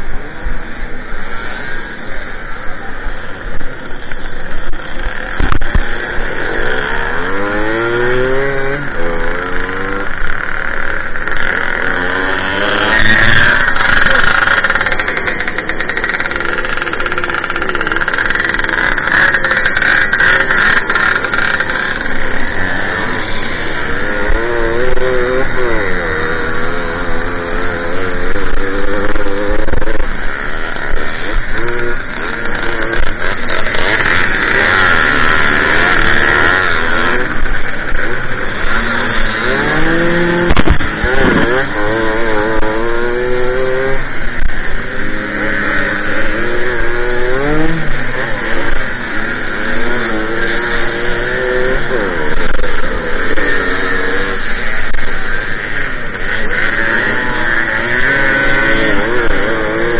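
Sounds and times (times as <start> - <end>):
two-stroke moped engine revving: 0.0 - 59.9.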